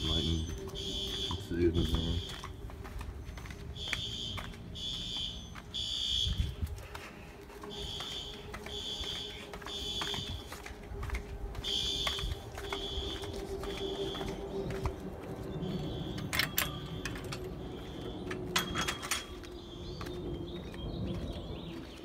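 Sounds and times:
fire alarm beeping: 0.0s - 2.6s, 3.4s - 6.6s, 7.6s - 10.6s, 11.6s - 14.8s.

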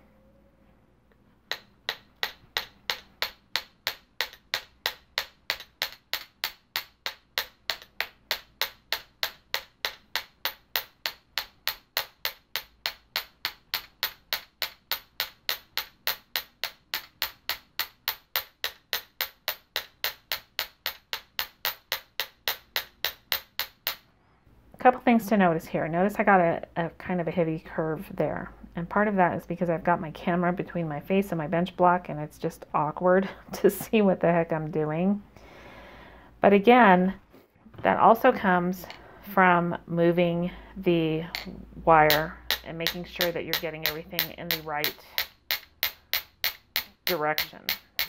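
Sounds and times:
hammer tapping wire on steel: 1.5s - 24.1s, 41.3s - 48.0s.

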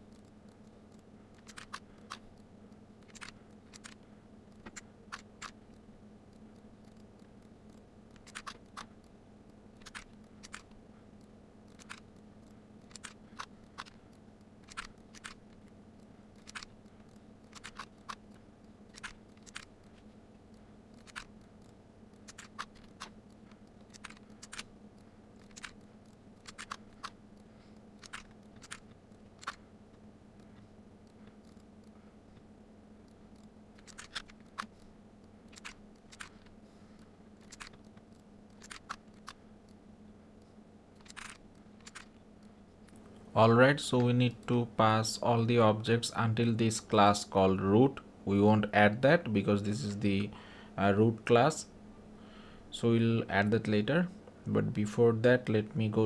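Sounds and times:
computer mouse clicks: 0.0s - 39.8s, 40.4s - 43.0s
low electrical hum: 0.0s - 56.0s
keyboard clicks: 0.1s - 9.1s, 9.8s - 15.8s, 16.4s - 20.0s, 21.0s - 29.6s, 33.0s - 34.8s, 35.5s - 36.5s, 37.4s - 39.4s, 41.0s - 42.2s.

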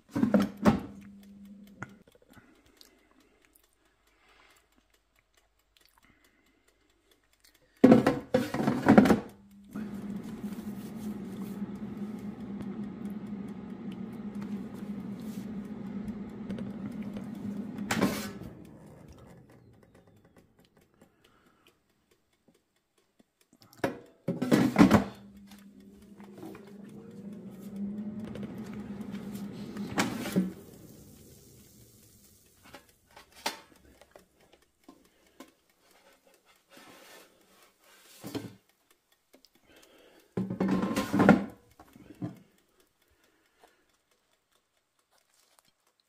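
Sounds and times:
air fryer fan humming: 0.0s - 1.8s, 7.8s - 20.6s, 23.8s - 34.0s, 39.7s - 42.5s
air fryer basket clunking: 7.9s - 18.6s, 24.3s - 31.8s, 40.4s - 41.6s.

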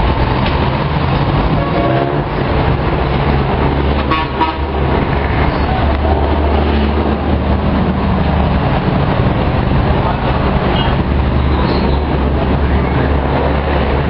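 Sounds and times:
highway traffic noise: 0.0s - 14.0s
vehicle horn tooting: 4.1s - 4.7s.

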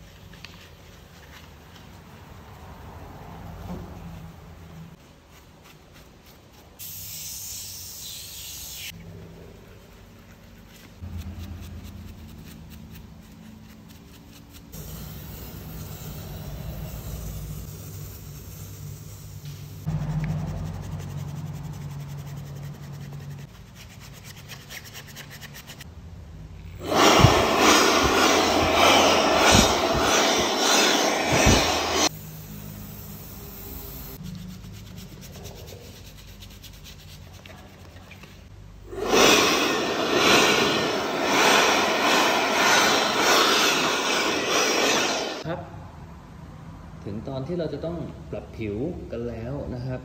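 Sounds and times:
steady low hum: 25.9s - 34.2s
abrasive sanding scraping: 26.8s - 32.1s.

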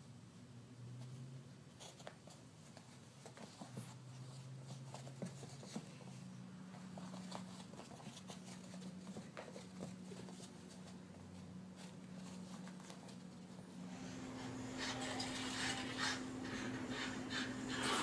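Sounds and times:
low steady hum: 0.0s - 18.0s
puppy paws scrabbling on carpet: 1.0s - 13.9s.

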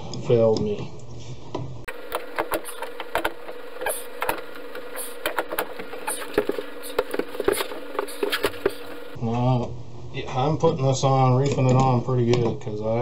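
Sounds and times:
steady hum: 1.9s - 10.0s.

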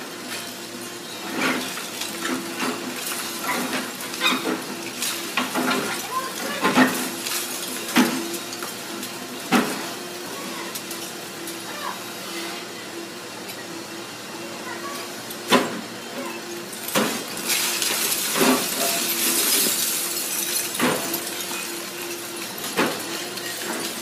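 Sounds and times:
excavator engine hum: 0.0s - 24.0s
concrete and brick crashing: 16.8s - 24.0s.

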